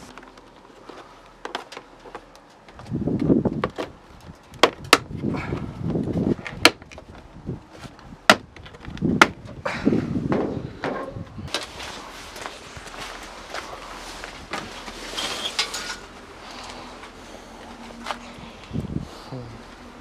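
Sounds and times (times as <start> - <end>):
rustling handling noise: 11.5 - 18.9.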